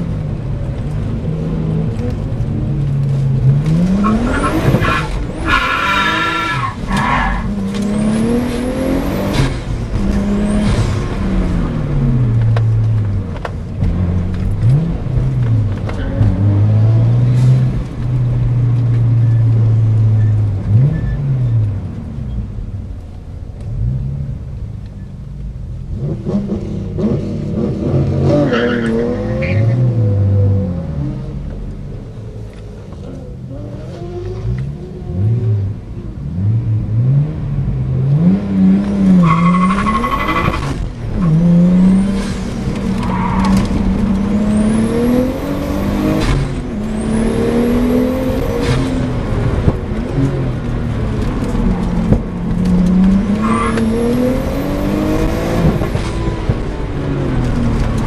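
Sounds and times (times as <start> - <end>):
car engine revving through gears: 0.1 - 22.4, 25.9 - 58.0.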